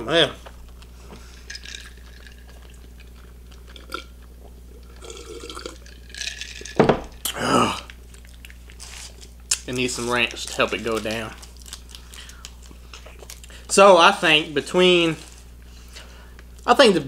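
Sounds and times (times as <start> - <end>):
sipping drink: 1.2 - 9.6
glass jar knocking on wooden table: 6.8 - 7.1.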